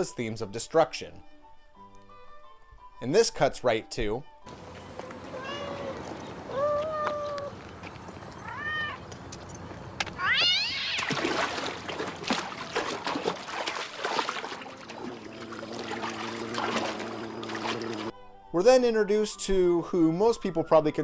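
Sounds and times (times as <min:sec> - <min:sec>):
cat meowing: 0:05.2 - 0:07.5, 0:08.4 - 0:09.0, 0:10.2 - 0:11.1
cat yowling: 0:05.2 - 0:07.5, 0:08.4 - 0:09.0, 0:10.2 - 0:11.2
water splashing: 0:10.6 - 0:18.1.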